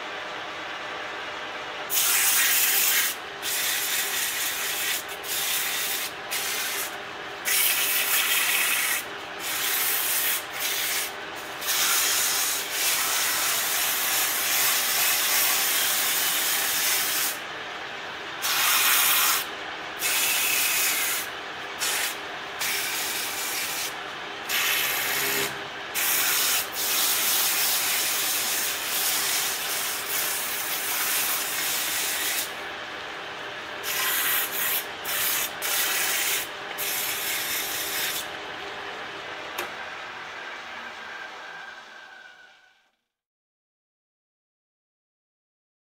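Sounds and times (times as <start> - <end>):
tool rasping on spinning wood: 2.0 - 17.4, 18.5 - 32.6, 33.8 - 38.4
lathe motor hum: 3.1 - 26.4, 27.0 - 42.0.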